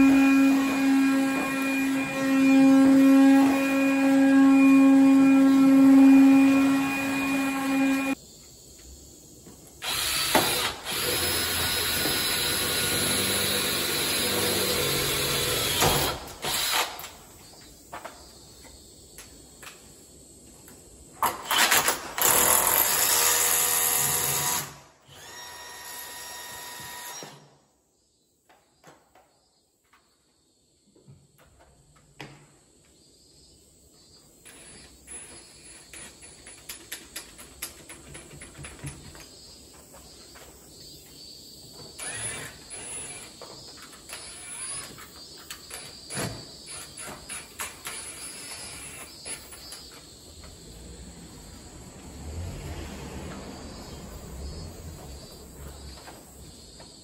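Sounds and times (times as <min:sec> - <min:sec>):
electric power tool whining: 0:00.0 - 0:08.2, 0:09.8 - 0:17.1, 0:21.4 - 0:27.5, 0:42.0 - 0:45.1.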